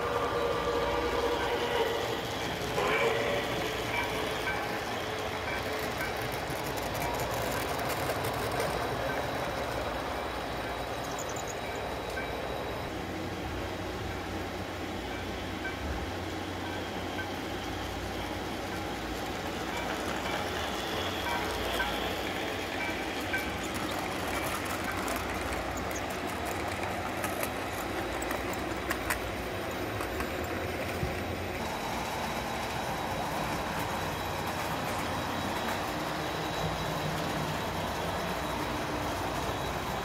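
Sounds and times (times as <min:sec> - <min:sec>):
model train wheels rumbling: 0:00.0 - 0:40.0.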